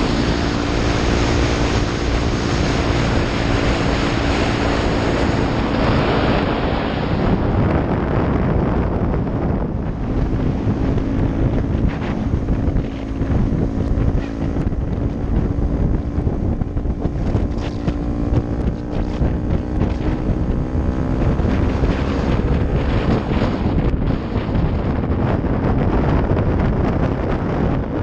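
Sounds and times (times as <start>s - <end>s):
motorcycle engine cruising: 0.0s - 28.0s
wind buffeting microphone: 0.0s - 28.0s.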